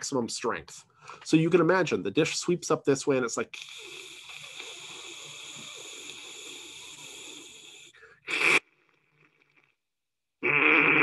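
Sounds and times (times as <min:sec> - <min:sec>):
man hissing like radio static: 0:03.4 - 0:08.6.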